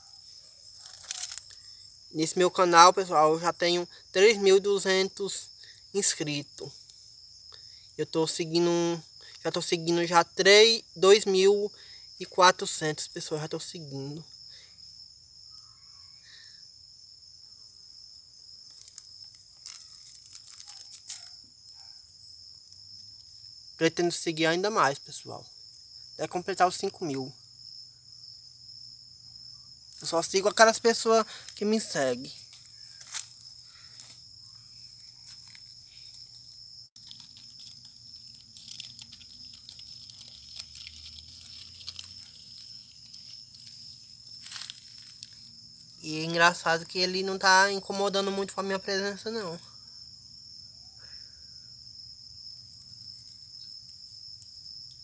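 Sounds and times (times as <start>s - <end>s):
insects chirring: 0.0s - 55.0s
crackling crunching clicks: 0.8s - 1.6s, 18.7s - 21.3s, 37.0s - 43.8s.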